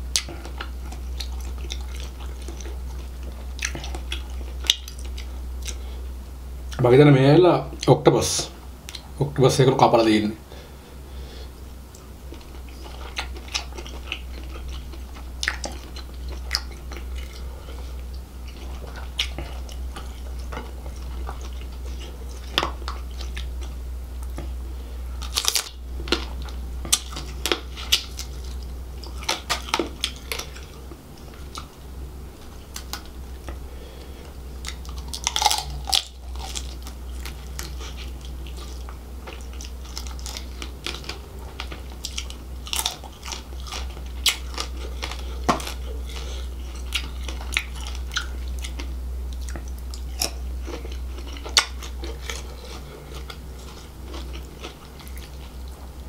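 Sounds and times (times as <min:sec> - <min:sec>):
close chewing and wet mouth sounds: 0:00.1 - 0:05.9, 0:11.9 - 0:24.6, 0:25.2 - 0:31.8, 0:32.4 - 0:56.0.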